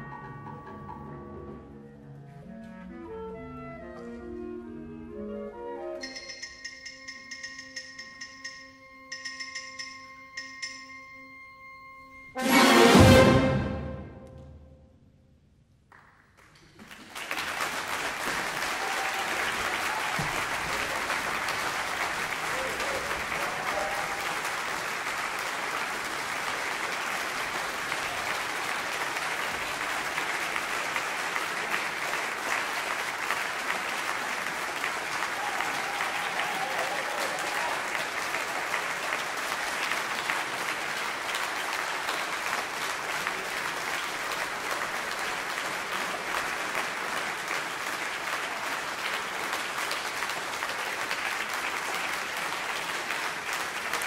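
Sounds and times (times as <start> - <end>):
audience applauding: 15.9 - 54.0.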